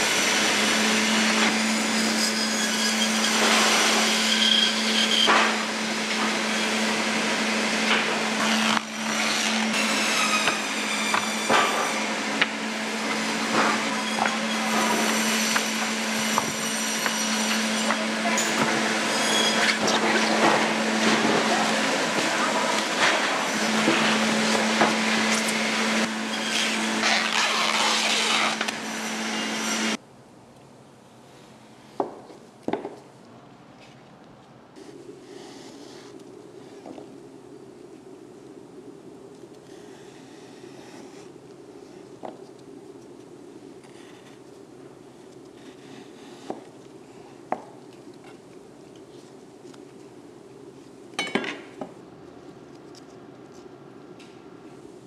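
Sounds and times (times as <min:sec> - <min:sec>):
processing machinery humming: 0:00.0 - 0:30.0
steady low hum: 0:34.5 - 0:55.0.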